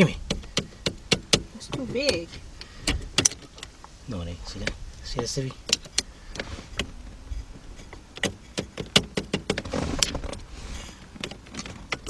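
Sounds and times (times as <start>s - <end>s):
screwdriver clicking and scraping: 5.7s - 12.0s.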